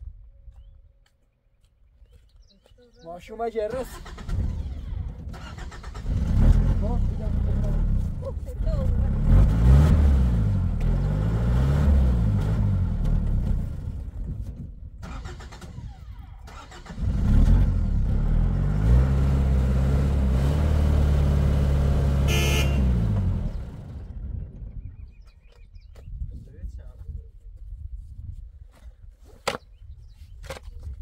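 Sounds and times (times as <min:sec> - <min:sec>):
truck engine revving hard: 0:03.9 - 0:08.0, 0:08.8 - 0:13.9, 0:16.5 - 0:24.2.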